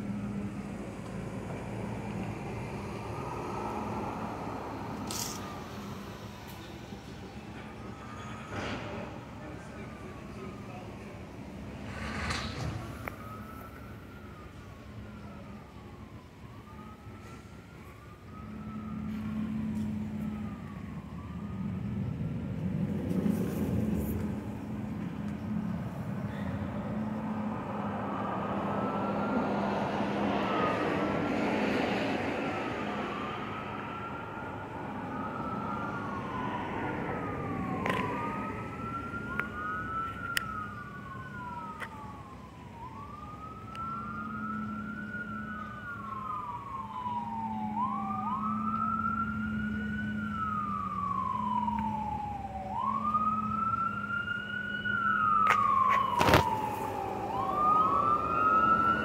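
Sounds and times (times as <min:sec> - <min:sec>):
sirens wailing: 0:00.0 - 0:59.0.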